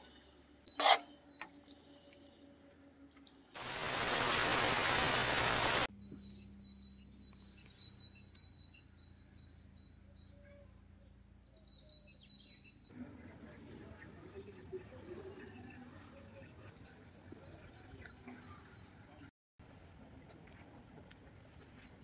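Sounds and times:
outdoor background noise: 0.0 - 22.0
tv static white noise: 3.6 - 5.9.

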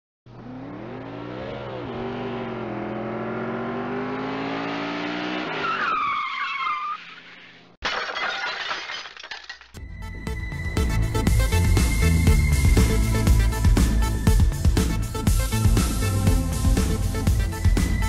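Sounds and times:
engine revving: 0.3 - 5.6
tyres screeching: 5.5 - 7.7
debris rattling and scattering: 7.8 - 9.8.

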